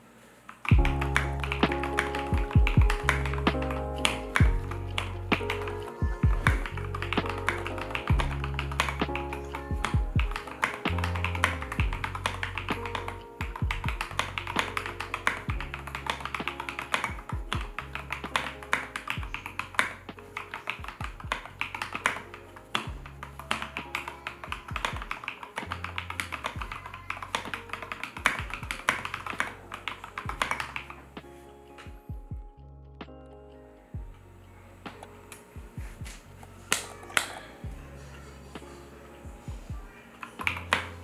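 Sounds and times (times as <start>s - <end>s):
mechanical keyboard typing: 0.7s - 31.0s
background music with bass: 0.7s - 41.0s.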